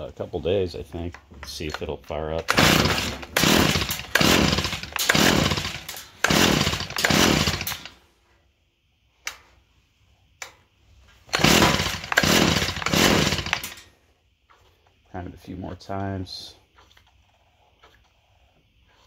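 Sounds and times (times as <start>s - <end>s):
recoil starter whirring pulls: 1.5s - 8.0s, 11.3s - 13.9s.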